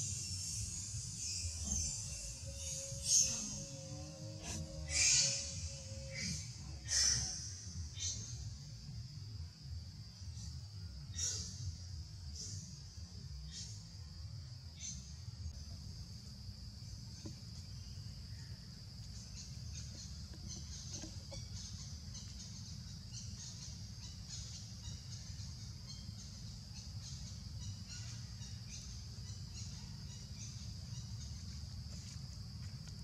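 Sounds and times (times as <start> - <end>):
high-pitched drone: 1.4 - 7.3.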